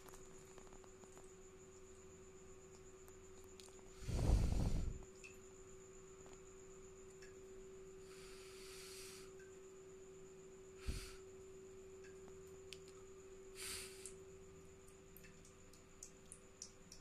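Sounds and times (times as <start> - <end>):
faint high whine: 0.0 - 17.0
steady low hum: 0.0 - 17.0
short soft hiss: 13.5 - 14.2.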